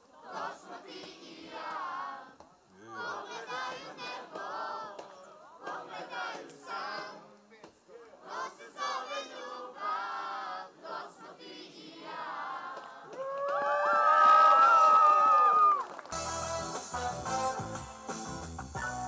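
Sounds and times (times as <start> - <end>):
audience singing and shouting: 0.3 - 2.4, 3.0 - 7.5, 8.2 - 13.2.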